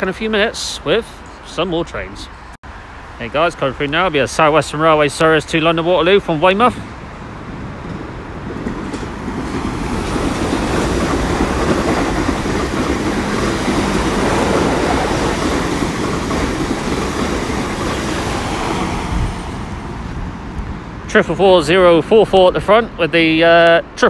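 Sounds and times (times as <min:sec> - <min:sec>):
train wheels rushing on rails: 0:03.9 - 0:20.8.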